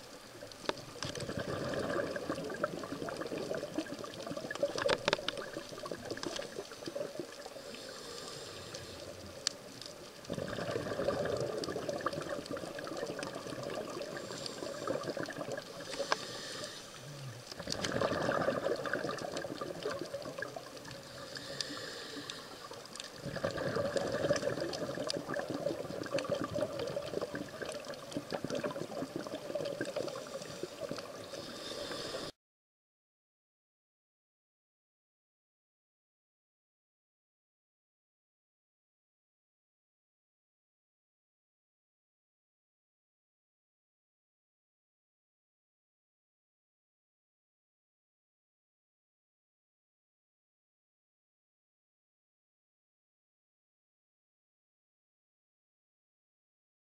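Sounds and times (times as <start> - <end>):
light crackling: 0.0 - 32.3
underwater regulator bubbles: 0.1 - 32.3.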